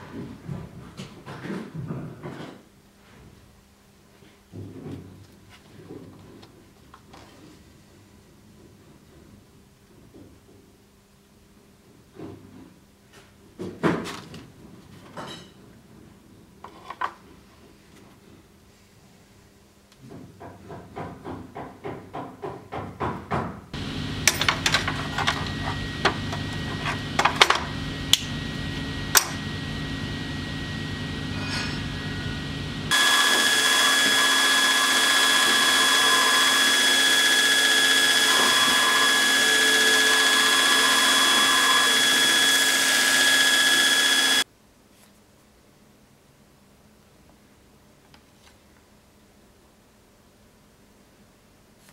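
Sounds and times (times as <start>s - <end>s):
surface grinder whining: 23.8s - 44.4s
workshop machinery humming: 23.8s - 44.4s.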